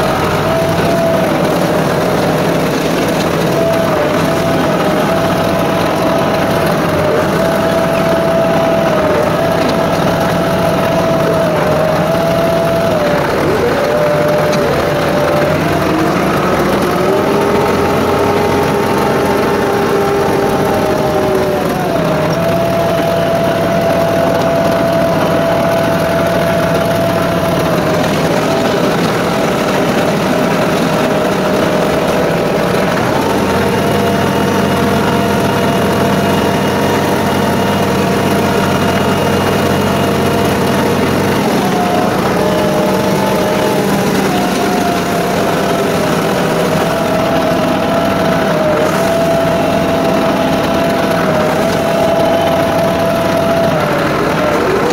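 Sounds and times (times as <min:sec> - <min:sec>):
tractor diesel engine under load: 0:00.0 - 0:54.9.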